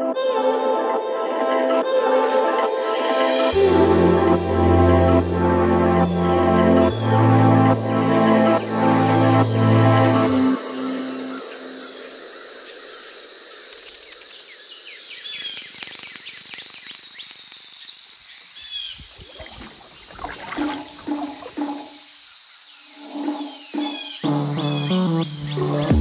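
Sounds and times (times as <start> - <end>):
insect drone: 4.6 - 26.0
low repeated bird calls: 4.8 - 26.0
birds chirping: 5.4 - 26.0.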